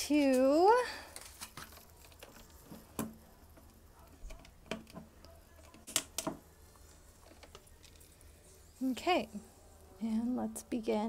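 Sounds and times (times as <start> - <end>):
plastic clicks and taps: 4.3 - 6.4.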